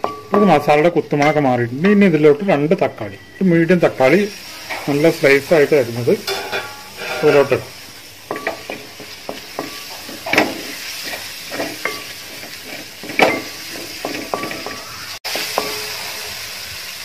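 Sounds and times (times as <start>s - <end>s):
masala sizzling in hot oil: 0.0s - 17.0s
wooden spatula scraping metal pot: 6.2s - 7.7s, 8.3s - 15.9s.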